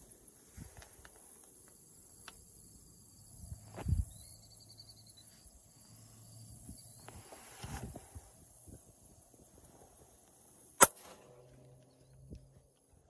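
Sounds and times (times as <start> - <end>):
insect drone: 0.0 - 13.0.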